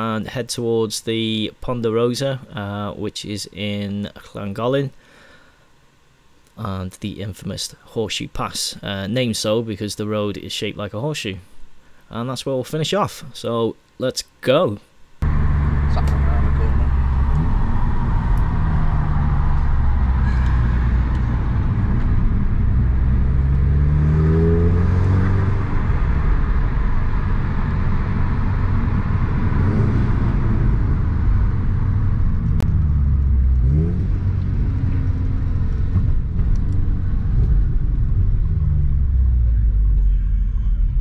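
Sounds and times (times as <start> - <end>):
car engine accelerating: 15.2 - 41.0
road rumble: 15.2 - 41.0.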